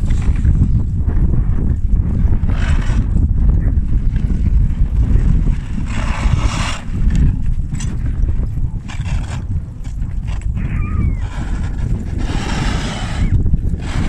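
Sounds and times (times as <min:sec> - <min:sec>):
sled rumbling over snow: 0:00.0 - 0:14.0
snow rushing hiss: 0:12.2 - 0:14.0.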